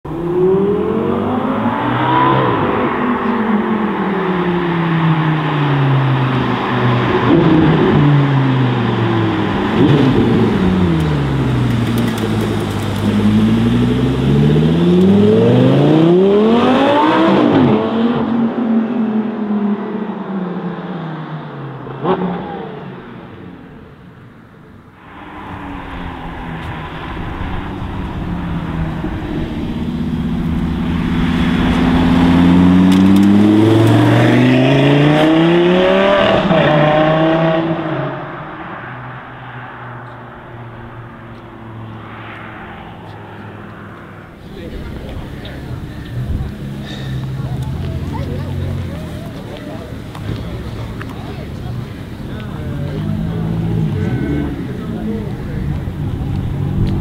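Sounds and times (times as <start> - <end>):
sports car engine revving: 0.1 - 19.0, 25.6 - 38.6.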